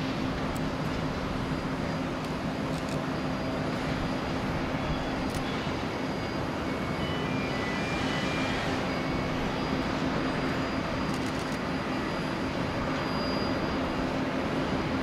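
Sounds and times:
constant low hum: 0.0 - 7.8
distant jet engine noise: 0.0 - 15.0.

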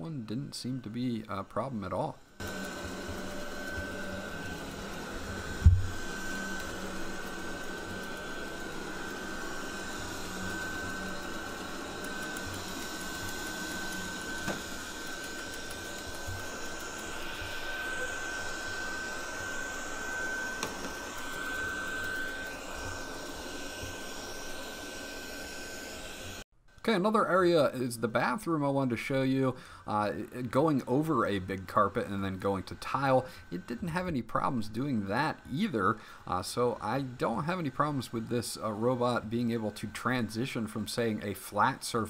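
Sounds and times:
robot vacuum whirring: 1.6 - 26.4, 30.0 - 42.0.

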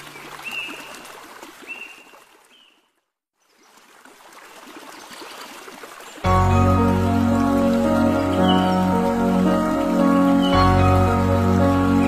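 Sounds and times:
stream running water: 0.0 - 12.0
bird call notes: 6.3 - 12.0.

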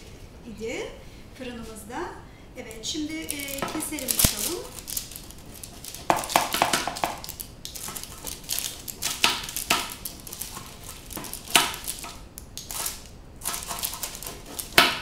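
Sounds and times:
pizza cutter crunching crust: 3.2 - 15.0.

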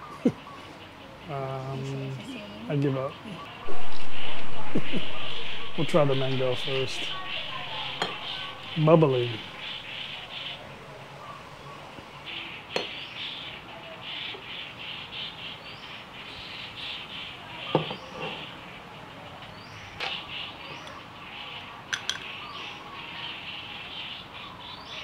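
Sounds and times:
birds chirping: 0.0 - 25.0
short rising bird call: 3.6 - 10.6.

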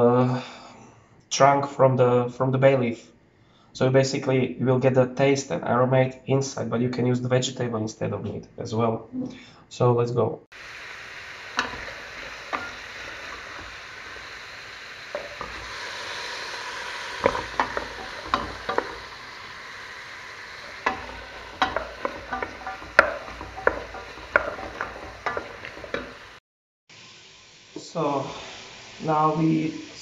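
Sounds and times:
vegetables sizzling in oil: 10.5 - 30.0
wooden spoon knocking against pot: 20.7 - 26.2.

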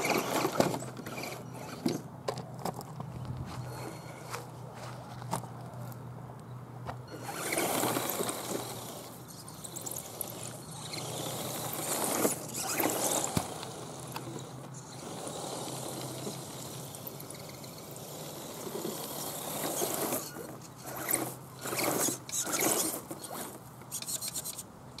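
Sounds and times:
rc truck electric motor: 0.0 - 2.0, 7.1 - 25.0
tyres brushing through grass: 2.6 - 6.0, 7.2 - 24.6.

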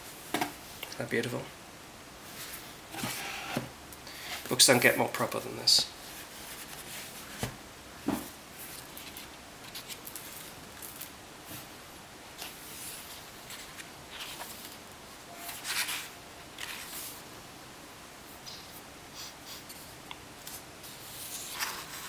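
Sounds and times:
pages rustling and turning: 6.1 - 7.6, 8.6 - 11.7, 12.4 - 17.2, 19.7 - 22.0.

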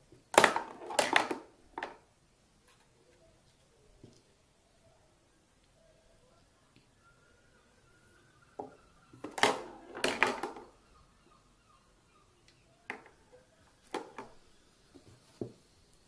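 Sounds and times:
toy pool balls clacking: 0.4 - 2.0, 8.6 - 10.8, 13.8 - 14.4.

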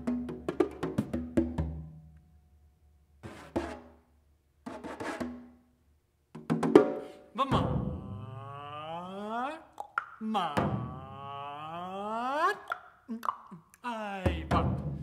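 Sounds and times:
congas struck by hand: 0.0 - 1.9, 6.4 - 7.9.

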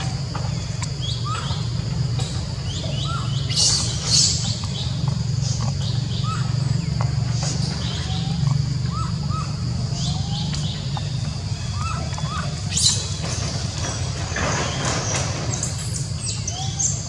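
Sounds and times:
sharp high bird calls: 0.0 - 13.3
birds chirping: 0.0 - 17.0
steady low hum: 0.0 - 17.0.

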